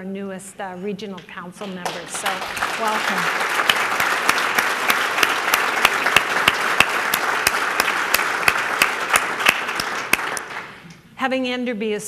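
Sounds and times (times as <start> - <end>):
sharp single claps: 1.2 - 10.9
audience applauding: 1.6 - 10.9.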